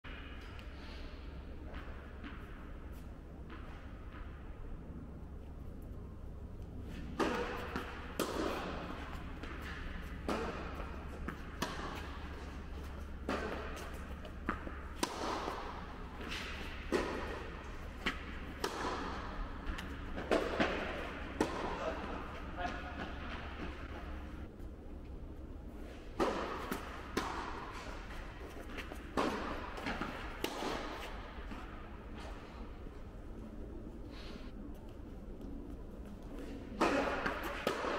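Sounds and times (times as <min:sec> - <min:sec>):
steady low hum: 0:00.1 - 0:37.9
tennis ball hit by racquets: 0:06.9 - 0:24.3, 0:25.9 - 0:32.8, 0:36.4 - 0:37.9.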